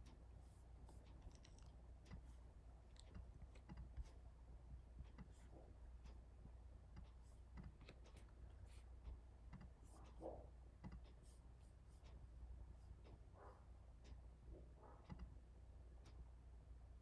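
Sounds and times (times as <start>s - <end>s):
low steady hum: 0.0s - 17.0s
computer mouse clicks: 3.0s - 4.2s, 6.9s - 8.4s, 9.5s - 9.8s, 10.8s - 11.2s, 15.0s - 15.4s.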